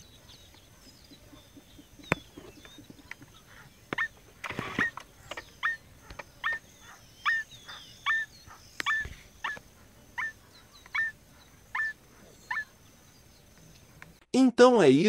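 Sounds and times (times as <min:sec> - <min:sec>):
rustle: 0:00.0 - 0:14.2
bird calling short sharp notes: 0:01.1 - 0:09.6.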